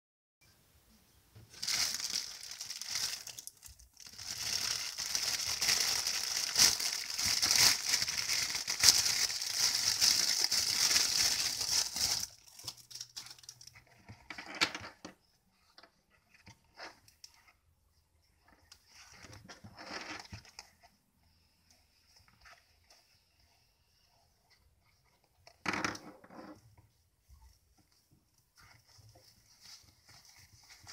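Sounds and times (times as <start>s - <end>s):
plastic bag crinkling: 1.5s - 13.8s.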